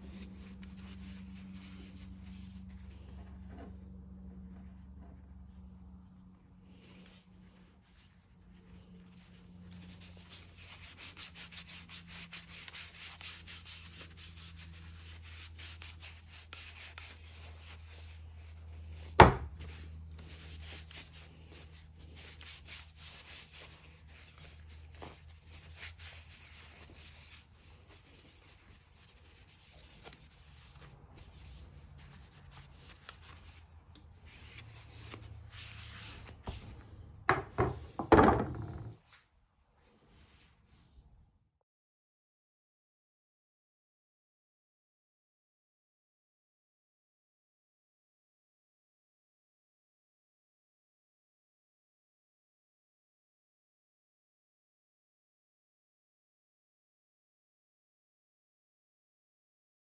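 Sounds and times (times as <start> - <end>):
cloth rubbing on metal blade: 0.0 - 3.6, 6.7 - 36.8
tool knocking on bench: 19.2 - 19.5, 37.3 - 39.0.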